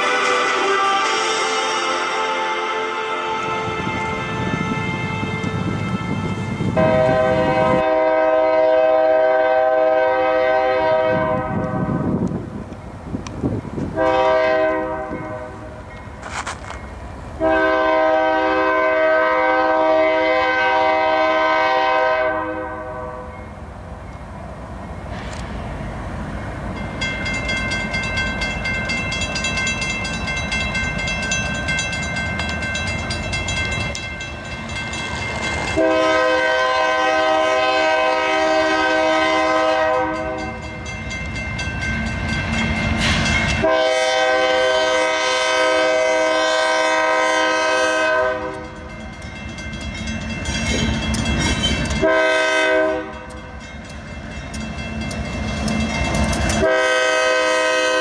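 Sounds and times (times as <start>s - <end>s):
crossing bell ringing: 0.0s - 8.1s, 14.1s - 18.4s, 23.2s - 24.4s, 26.6s - 45.5s, 46.1s - 58.0s
locomotive horn blasts: 0.0s - 12.2s, 14.0s - 15.8s, 17.4s - 23.4s, 35.7s - 40.7s, 43.5s - 48.9s, 51.9s - 53.4s, 56.5s - 58.0s
train rumbling: 0.0s - 58.0s.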